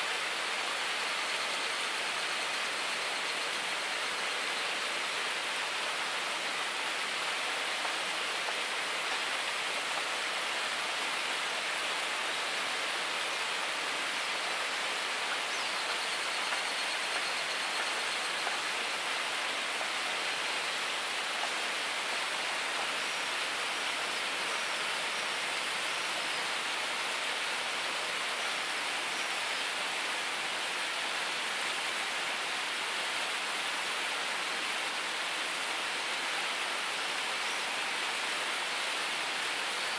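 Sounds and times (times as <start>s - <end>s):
river rushing: 0.0s - 39.9s.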